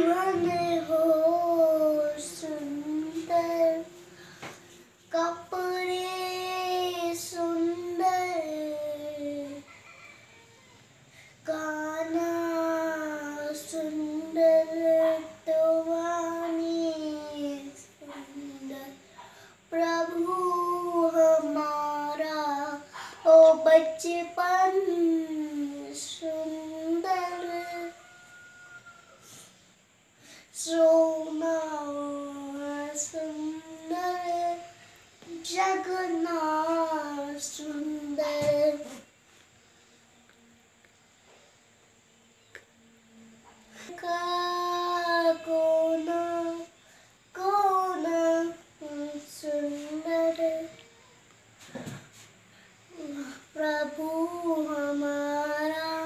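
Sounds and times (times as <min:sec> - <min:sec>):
girl singing long notes: 0:00.0 - 0:09.7, 0:11.4 - 0:19.0, 0:19.6 - 0:28.1, 0:30.5 - 0:39.1, 0:42.5 - 0:50.8.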